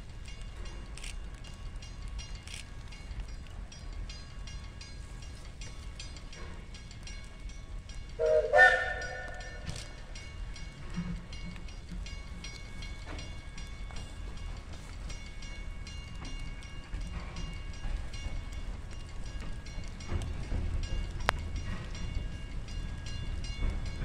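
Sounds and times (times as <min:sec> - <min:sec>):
locomotive rumble: 0:00.0 - 0:24.0
steam locomotive whistle: 0:08.2 - 0:10.0.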